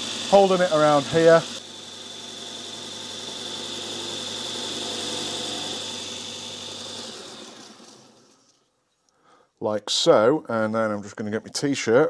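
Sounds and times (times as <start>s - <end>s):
sharpener motor whining: 0.0s - 8.5s.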